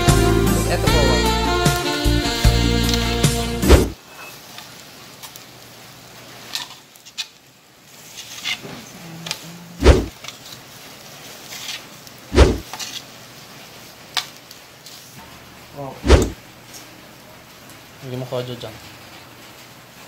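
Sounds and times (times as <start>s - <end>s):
tongs clicking and scraping on grill: 4.1s - 5.6s, 6.4s - 13.2s, 14.1s - 15.0s.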